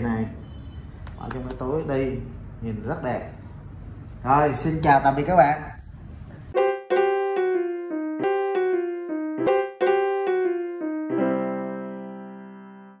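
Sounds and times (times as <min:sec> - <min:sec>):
keyboard music jingle: 0:06.5 - 0:13.0.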